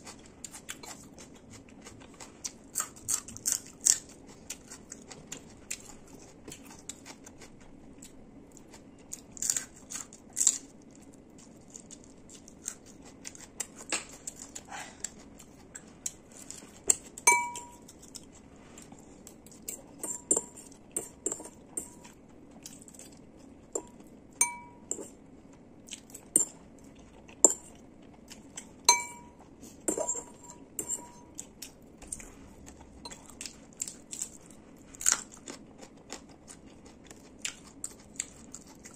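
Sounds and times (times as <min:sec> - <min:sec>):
ringing taps: 0:17.3 - 0:17.8, 0:24.4 - 0:24.8
fork scraping ceramic bowl: 0:20.0 - 0:22.1, 0:28.9 - 0:31.4.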